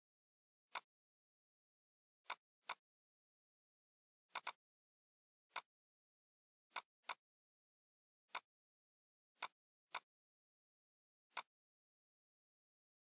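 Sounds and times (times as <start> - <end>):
computer mouse clicks: 4.3 - 4.6, 6.7 - 7.2, 11.3 - 11.5.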